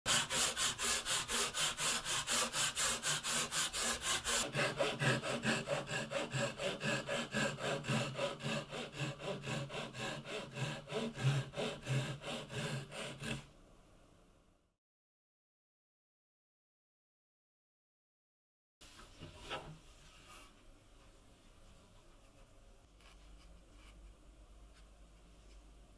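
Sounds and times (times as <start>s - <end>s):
hand saw cutting wood: 0.1s - 13.5s.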